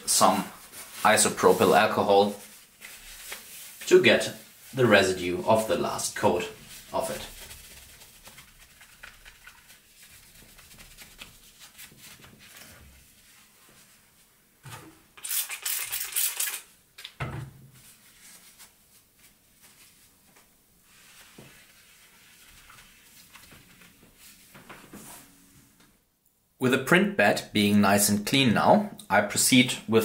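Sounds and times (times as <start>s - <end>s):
paper towel wiping glass: 0.0s - 14.4s, 17.8s - 25.3s.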